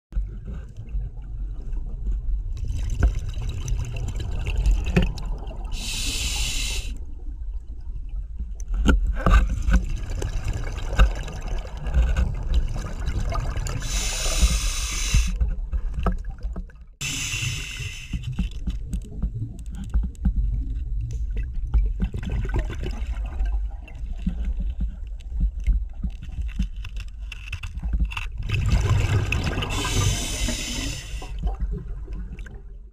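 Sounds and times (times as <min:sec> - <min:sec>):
low rumble of water: 0:00.1 - 0:32.9
regulator breathing hiss: 0:05.8 - 0:07.0, 0:13.8 - 0:15.4, 0:17.0 - 0:18.2, 0:29.7 - 0:31.4.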